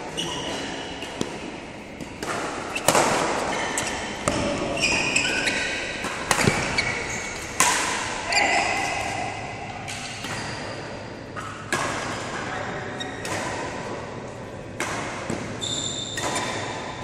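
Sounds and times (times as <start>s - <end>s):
sports shoes squeaking: 0.1s - 1.2s, 2.7s - 7.5s, 15.6s - 16.6s
rackets striking shuttlecock: 0.4s - 8.2s, 13.2s - 13.9s, 14.7s - 17.0s.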